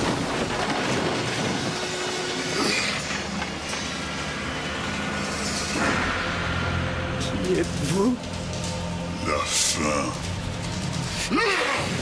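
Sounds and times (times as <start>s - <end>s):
violent rushing wind effect: 0.0s - 9.2s.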